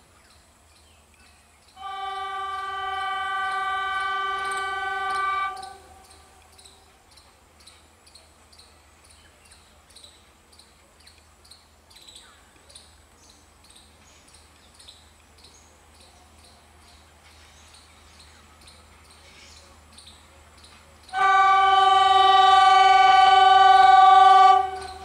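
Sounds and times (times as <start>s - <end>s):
distant locomotive rumble: 1.7s - 9.2s, 13.4s - 25.0s
locomotive horn: 1.8s - 6.5s, 21.1s - 25.0s.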